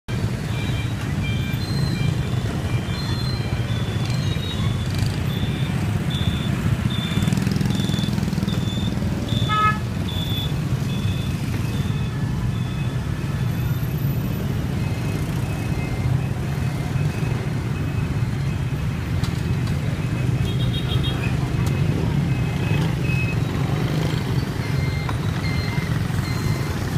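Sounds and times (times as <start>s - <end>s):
traffic engines rumbling: 0.1s - 26.9s.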